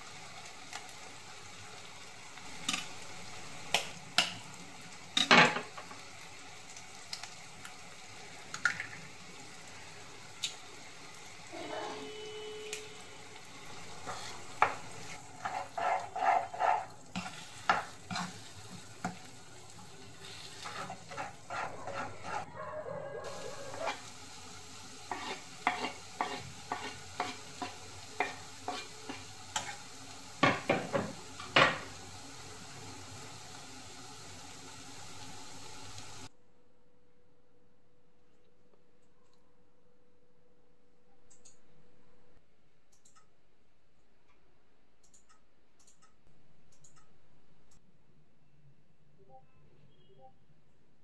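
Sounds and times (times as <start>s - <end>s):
frying sizzle: 0.0s - 36.3s
spatula stirring and scraping pan: 13.3s - 32.0s.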